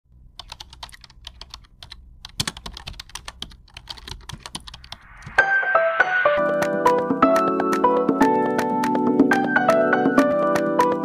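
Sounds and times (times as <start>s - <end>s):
typing on keyboard: 0.4s - 5.4s, 6.4s - 11.0s
piano-like music: 5.2s - 11.0s.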